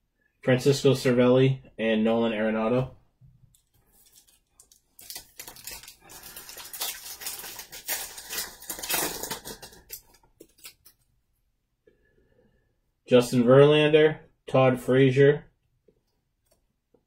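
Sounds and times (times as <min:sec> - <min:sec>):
card pack crackling and rustling: 0:03.6 - 0:11.0.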